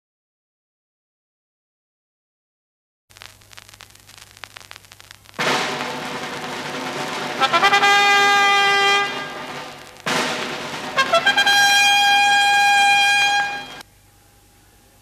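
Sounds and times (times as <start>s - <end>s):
bugle call: 5.4s - 13.8s.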